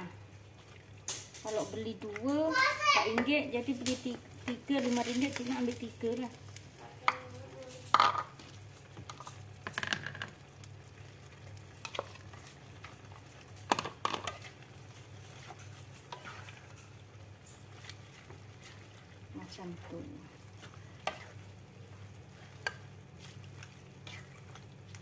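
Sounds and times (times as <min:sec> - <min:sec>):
spatula scraping in a pot: 0:11.7 - 0:25.0.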